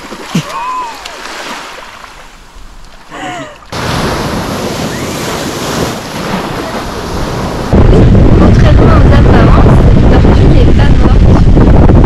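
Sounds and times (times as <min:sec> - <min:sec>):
surf breaking over rocks: 0:03.7 - 0:12.0.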